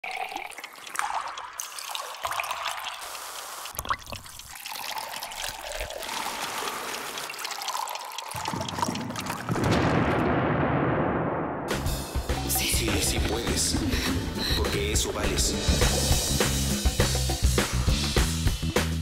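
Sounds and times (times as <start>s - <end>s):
liquid pouring into glasses: 0.0s - 9.6s.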